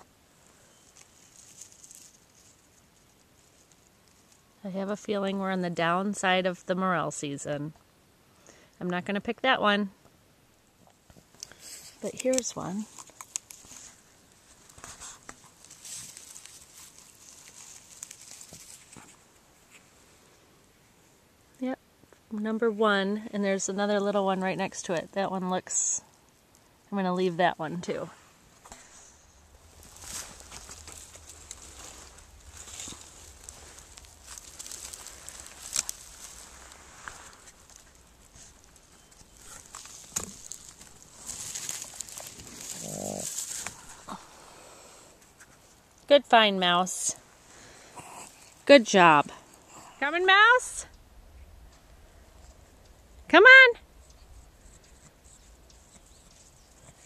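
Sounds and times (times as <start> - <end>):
dry grass and leaves rustling: 0.0 - 6.8, 10.6 - 22.3, 23.0 - 57.0
small twig clicks: 12.2 - 19.8, 29.6 - 44.1.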